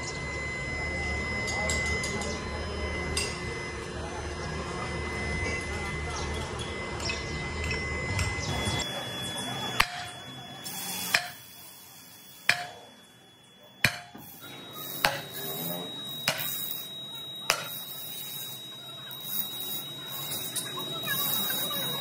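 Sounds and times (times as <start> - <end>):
sledgehammer striking metal: 12.5 - 12.8, 13.8 - 14.2.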